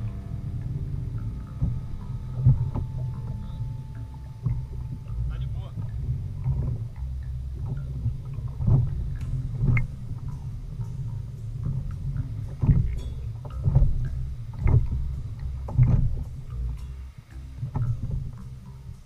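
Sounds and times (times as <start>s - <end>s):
waves slapping kayak hull: 0.0s - 19.0s
wind and water rumble: 0.0s - 19.0s.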